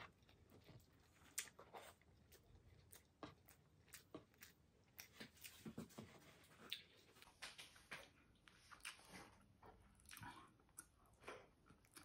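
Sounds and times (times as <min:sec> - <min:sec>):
person chewing wet clicks: 0:00.0 - 0:05.6.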